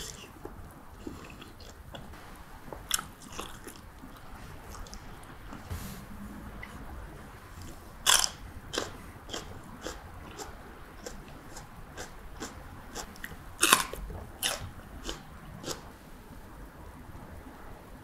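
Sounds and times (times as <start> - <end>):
crunchy chewing: 0.0 - 5.7, 7.6 - 16.0
biting crisply into chili: 8.1 - 15.9.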